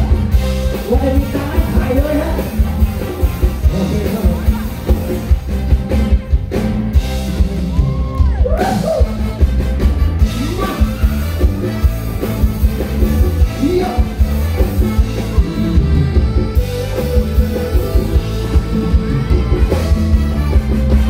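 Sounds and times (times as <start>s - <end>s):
man singing: 0.0s - 5.0s, 13.4s - 14.3s
live rock band through speakers: 0.0s - 21.0s.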